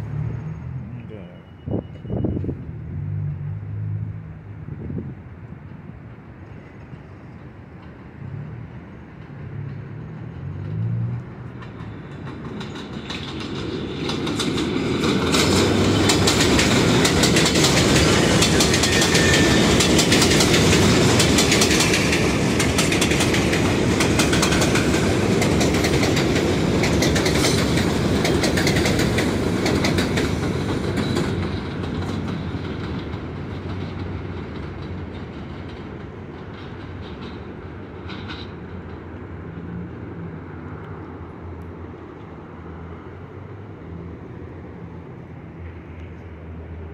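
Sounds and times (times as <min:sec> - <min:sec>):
subway train passing: 0:00.0 - 0:46.9
wheels clacking over rails: 0:07.5 - 0:40.4.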